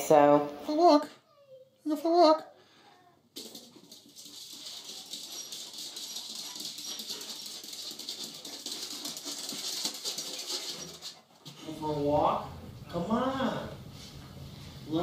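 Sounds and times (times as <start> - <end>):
paws pattering on wooden floor: 3.4 - 11.6.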